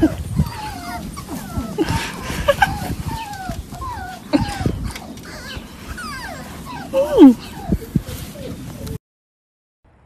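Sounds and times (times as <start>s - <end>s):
puppy whimpering: 0.0s - 9.0s.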